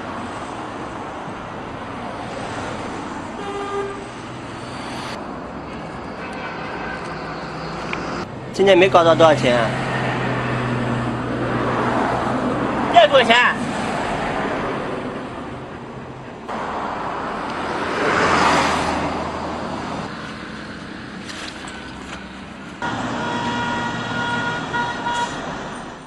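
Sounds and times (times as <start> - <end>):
cars passing on street: 0.0 - 26.0
steady high horn tone: 3.4 - 7.2, 22.8 - 25.4.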